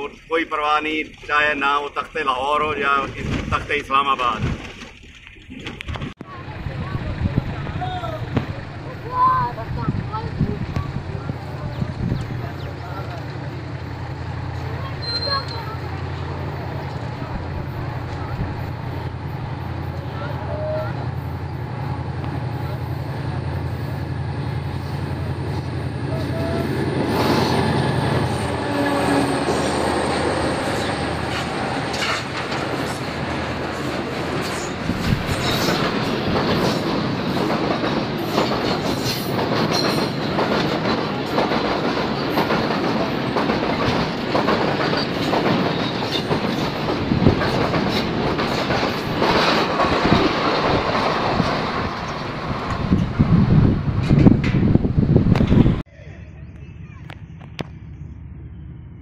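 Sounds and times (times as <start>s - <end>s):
diesel locomotive engine drone: 6.2s - 59.0s
train wheels clicking over rail joints: 26.9s - 55.8s.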